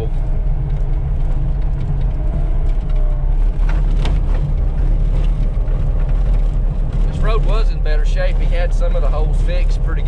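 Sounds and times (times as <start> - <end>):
vehicle engine on dirt road: 0.0 - 10.0.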